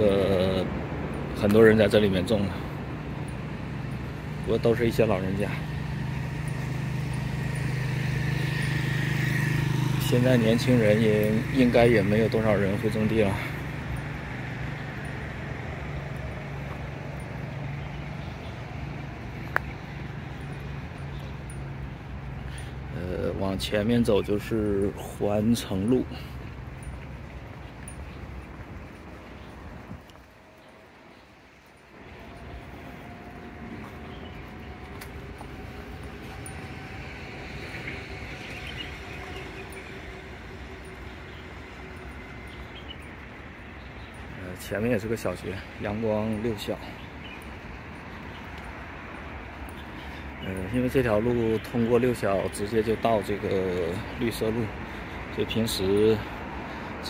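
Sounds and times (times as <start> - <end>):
distant road traffic rumble: 0.0 - 57.0
high bird chirps: 33.8 - 44.4.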